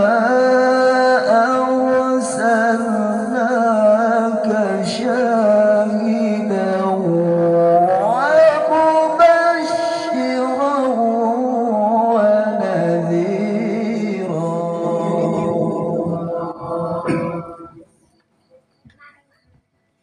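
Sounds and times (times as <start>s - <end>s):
man reciting melodically through loudspeakers: 0.0s - 18.0s.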